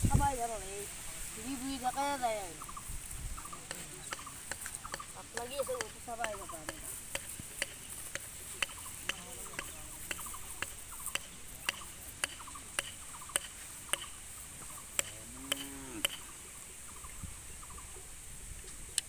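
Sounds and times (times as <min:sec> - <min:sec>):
steady high hiss: 0:00.0 - 0:19.0
regular ticking: 0:01.5 - 0:16.3.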